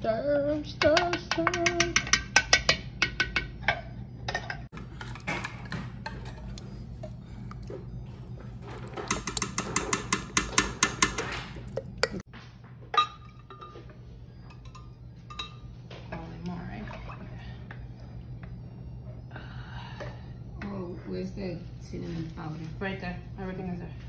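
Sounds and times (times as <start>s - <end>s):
metal spoon clinking against pot: 0.8s - 4.6s, 9.1s - 12.2s.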